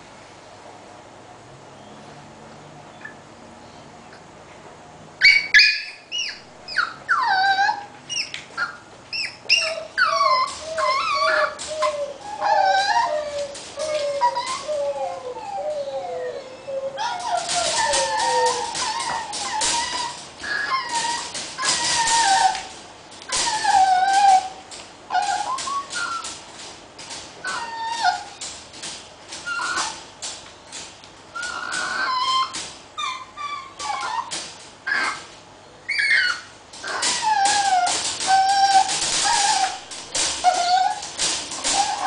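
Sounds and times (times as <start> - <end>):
puppy whining and yelping: 5.2 - 30.1, 31.3 - 42.0
wire crate door rattling: 9.5 - 35.3, 36.1 - 42.0.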